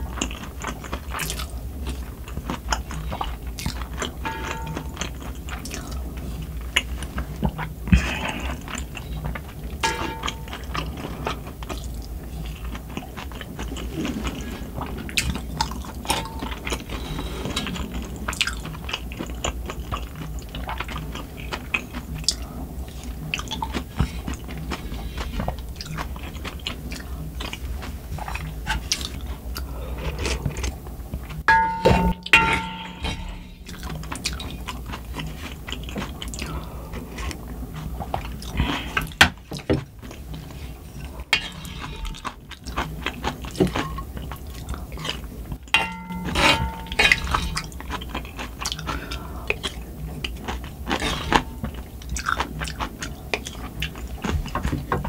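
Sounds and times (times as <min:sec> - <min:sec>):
chewing and mouth sounds: 0:00.0 - 0:31.6, 0:32.3 - 0:55.0
wind and rain hum: 0:08.8 - 0:41.4.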